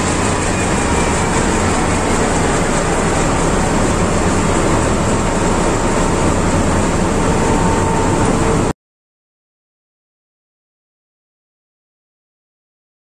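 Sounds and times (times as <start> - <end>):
diesel generator engine running: 0.0 - 8.7.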